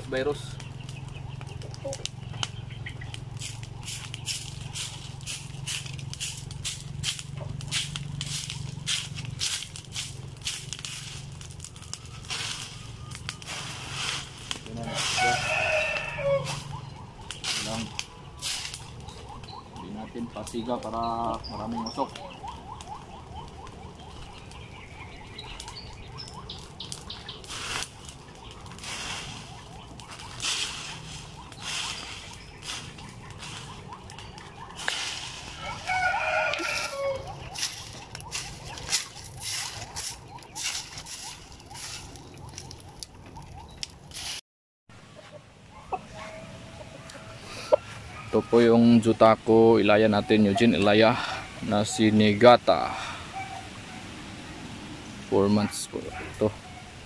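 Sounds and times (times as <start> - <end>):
broom sweeping dry leaves: 3.3 - 16.8, 17.4 - 19.0, 26.5 - 42.8, 44.1 - 44.4, 47.0 - 48.6.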